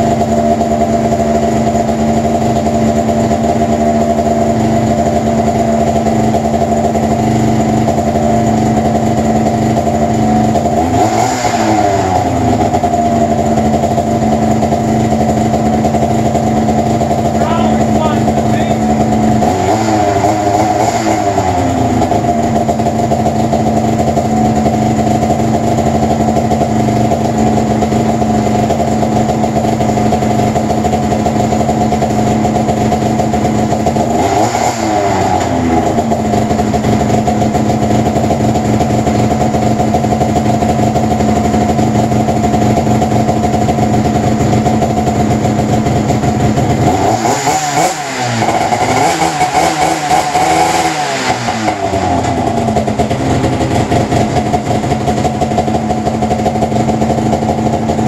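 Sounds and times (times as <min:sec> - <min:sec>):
snowmobile engine revving: 0:10.6 - 0:13.5, 0:17.3 - 0:22.7, 0:33.8 - 0:37.1, 0:46.6 - 0:55.2.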